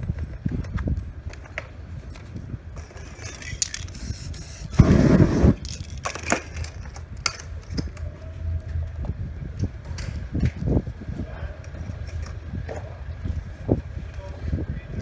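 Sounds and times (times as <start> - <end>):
aerosol spray hissing: 3.9 - 5.6
loud rushing spray burst: 3.9 - 5.6.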